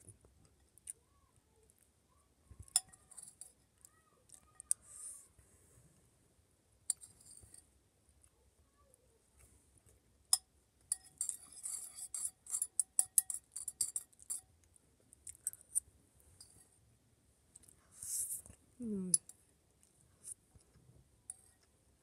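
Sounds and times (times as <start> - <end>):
cutlery clinking against bowl: 2.6 - 3.6, 6.9 - 7.6, 10.3 - 14.4.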